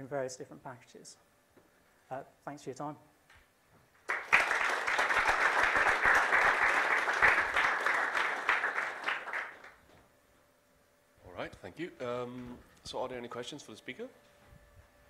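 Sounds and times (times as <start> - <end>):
audience applauding: 4.0 - 9.8.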